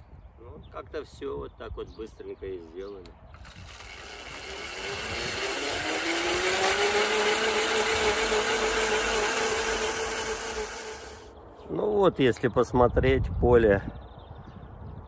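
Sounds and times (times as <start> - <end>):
electric motor whine: 3.3 - 11.3
tines digging soil: 3.3 - 11.3.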